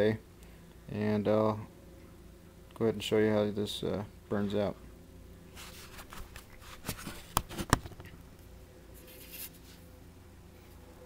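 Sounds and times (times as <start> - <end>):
faint steady hum: 0.0 - 11.0
handling scraping and rustling: 5.5 - 8.2, 8.9 - 9.9.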